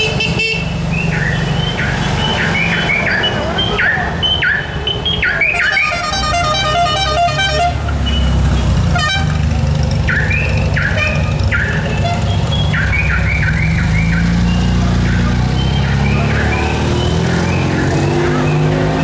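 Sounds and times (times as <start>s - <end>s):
electronic horn chirps: 5.5s - 7.8s
musical car horn tune: 5.5s - 7.8s, 8.8s - 9.4s, 10.9s - 12.4s
small car engines passing: 7.7s - 19.0s.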